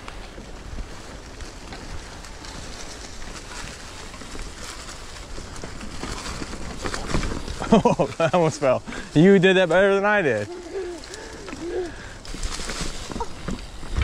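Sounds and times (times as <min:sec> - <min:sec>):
bike clicks and knocks: 0:00.0 - 0:08.3, 0:12.2 - 0:14.0
tyres rolling over dry leaves: 0:00.0 - 0:14.0.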